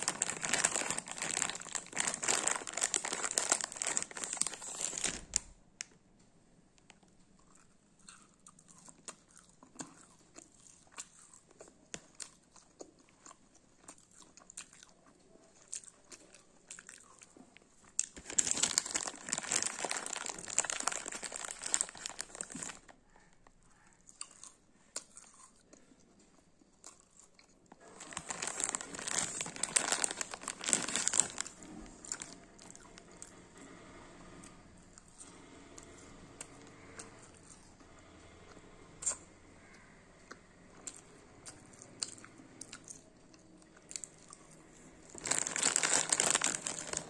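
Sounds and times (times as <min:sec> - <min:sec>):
plastic bag crinkling: 0:00.0 - 0:05.5, 0:18.0 - 0:23.0, 0:27.8 - 0:32.9, 0:45.1 - 0:47.0.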